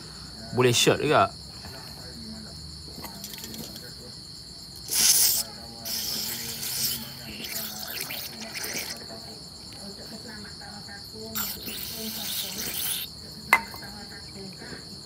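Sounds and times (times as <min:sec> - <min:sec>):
aerosol can spraying: 0:04.9 - 0:09.0, 0:11.4 - 0:13.7.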